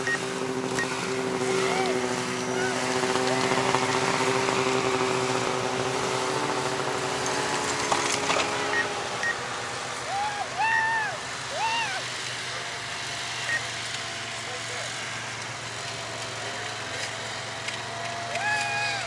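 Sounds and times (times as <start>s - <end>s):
outdoor crowd noise: 0.0s - 19.0s
snowmobile engines running: 0.0s - 19.0s
person shouting: 1.5s - 2.9s, 10.0s - 12.1s, 18.3s - 19.0s.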